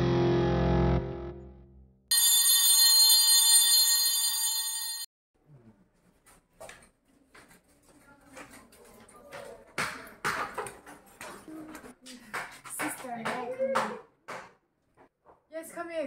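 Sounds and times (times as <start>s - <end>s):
electric bell ringing: 2.1s - 5.1s
faint footsteps: 6.0s - 13.6s.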